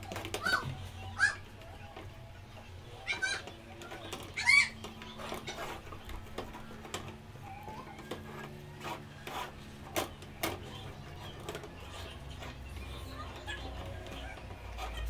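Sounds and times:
wooden spoon scraping dough in pot: 8.1s - 10.2s, 10.9s - 15.0s.

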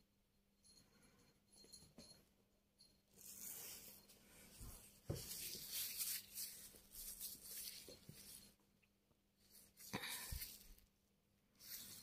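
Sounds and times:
kitten scuffling with toy: 3.0s - 8.7s, 9.4s - 10.9s, 11.5s - 12.0s.

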